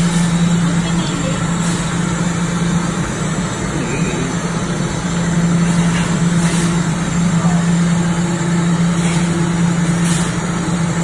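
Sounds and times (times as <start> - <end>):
low motor hum: 0.0 - 11.0.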